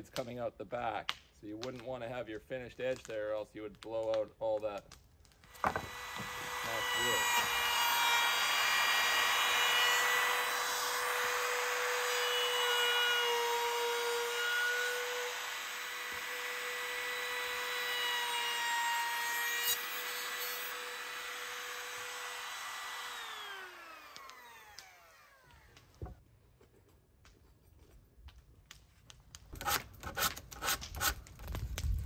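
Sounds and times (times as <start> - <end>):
trim router whining: 5.5 - 26.2.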